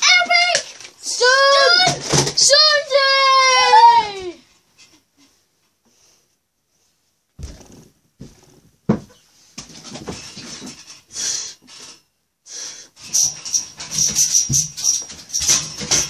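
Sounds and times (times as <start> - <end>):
knocks and bumps: 7.4 - 10.8.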